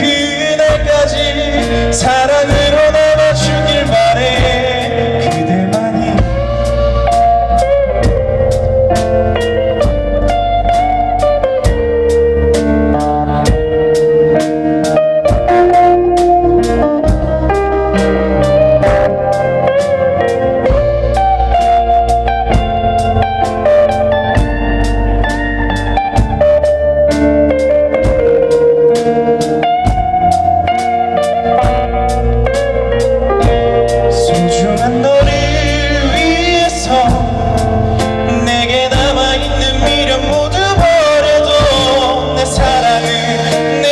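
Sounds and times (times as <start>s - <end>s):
man singing into microphone: 0.0s - 7.6s, 33.4s - 43.9s
drum kit: 0.0s - 43.9s
electric guitar lead melody: 0.0s - 43.9s
keyboard: 0.0s - 43.9s.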